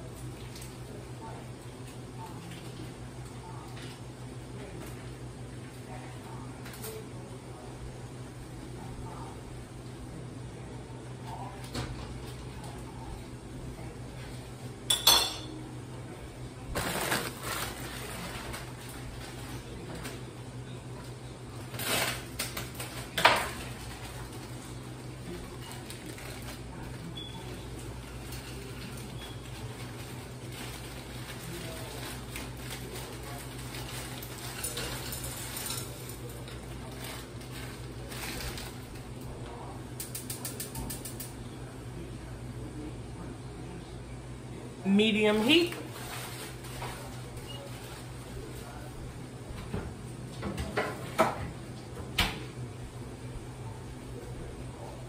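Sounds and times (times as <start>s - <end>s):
metal cookware clanking: 14.9s - 15.5s
rustling scrape: 16.8s - 19.6s, 45.8s - 48.0s.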